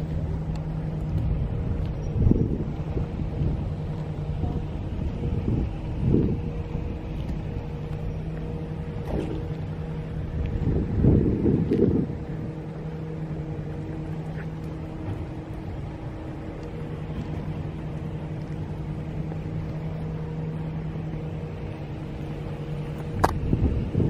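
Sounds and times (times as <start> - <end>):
low machine hum: 0.0 - 24.0.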